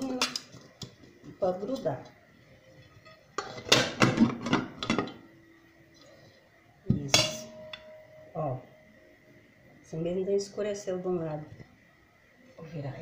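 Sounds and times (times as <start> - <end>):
baking tin clanging: 7.0 - 7.9.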